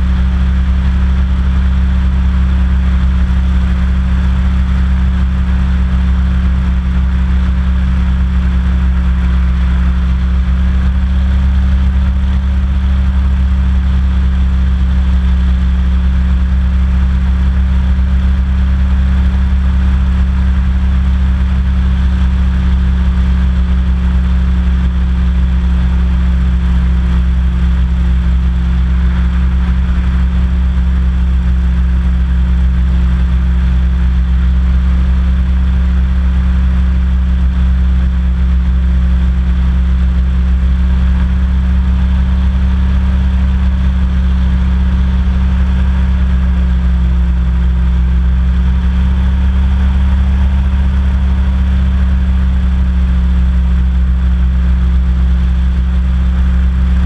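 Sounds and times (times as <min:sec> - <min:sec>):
hovercraft engine droning: 0:00.0 - 0:04.0.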